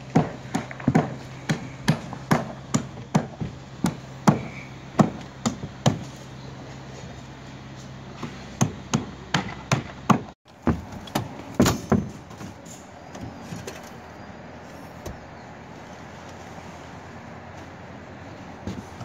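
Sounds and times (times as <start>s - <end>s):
knocks on wooden roof boards: 0.0s - 6.2s, 8.2s - 12.6s.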